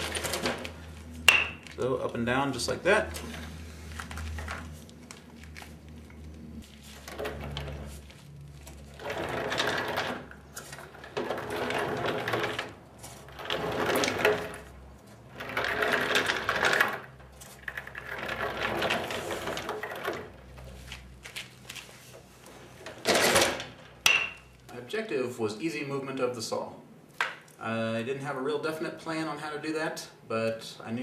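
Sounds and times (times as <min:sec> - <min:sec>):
casters and lever mechanical noise: 0:00.0 - 0:21.4, 0:22.4 - 0:24.7.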